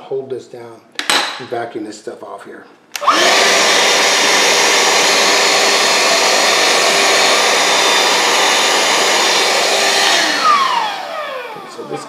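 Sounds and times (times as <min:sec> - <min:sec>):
handheld vacuum cleaner running: 0:03.0 - 0:12.0.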